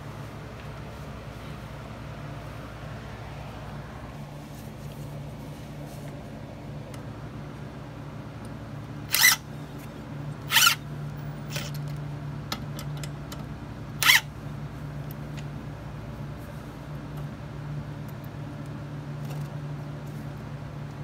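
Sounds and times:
steady low hum: 0:00.0 - 0:21.0
cordless drill driving screws: 0:09.1 - 0:09.4, 0:10.5 - 0:10.8, 0:14.0 - 0:14.3.

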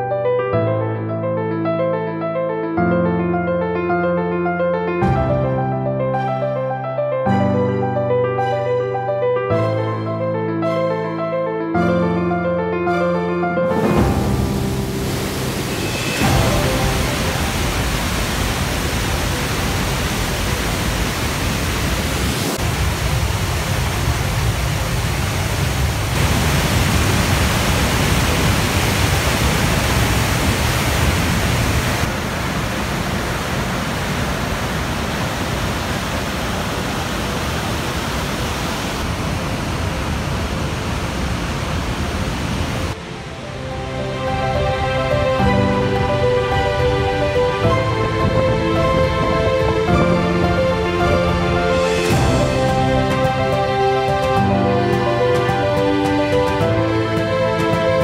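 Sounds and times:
background music: 0:00.0 - 0:21.2, 0:43.0 - 0:58.0
roar of rushing water: 0:13.7 - 0:54.4.

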